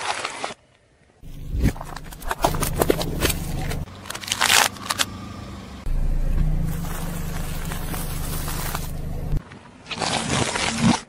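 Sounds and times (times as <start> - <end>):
plastic cups crackling and crunching: 1.2 - 5.1, 6.6 - 11.0
car engine running: 1.2 - 9.4.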